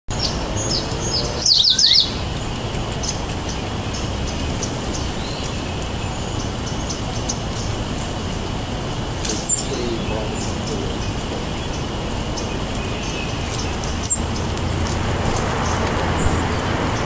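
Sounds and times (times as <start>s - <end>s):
low background noise: 0.1s - 17.0s
songbirds chirping: 0.1s - 17.0s.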